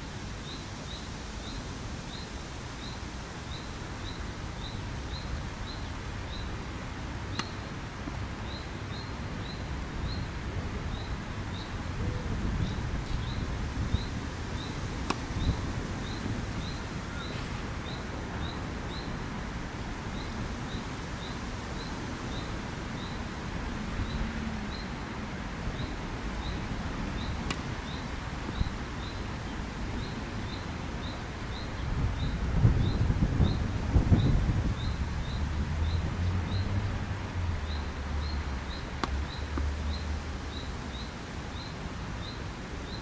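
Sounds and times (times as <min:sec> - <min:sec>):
wind rumbling on microphone: 0:00.0 - 0:43.0
tennis racket hitting ball: 0:15.0 - 0:15.3.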